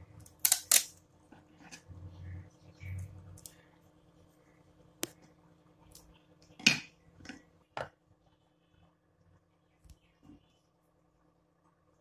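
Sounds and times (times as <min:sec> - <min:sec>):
kitchen items on wooden board: 0:00.0 - 0:04.0, 0:04.7 - 0:08.2.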